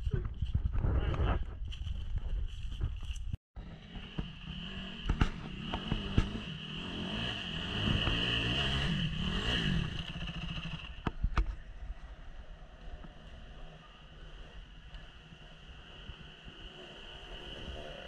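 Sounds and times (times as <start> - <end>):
dirt bike engine revving: 3.6 - 11.1.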